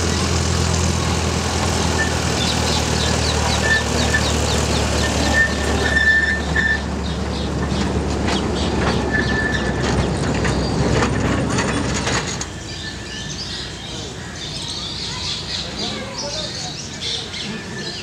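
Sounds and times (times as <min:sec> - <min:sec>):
wheels clicking over rail joints: 0:00.0 - 0:13.7.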